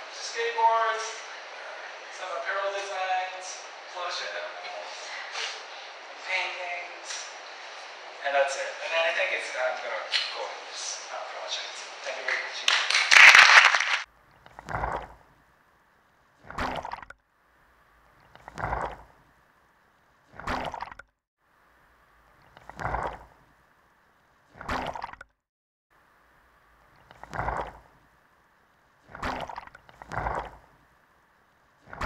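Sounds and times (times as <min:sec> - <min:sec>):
water gurgling and sloshing: 0:14.1 - 0:25.4, 0:26.1 - 0:32.0.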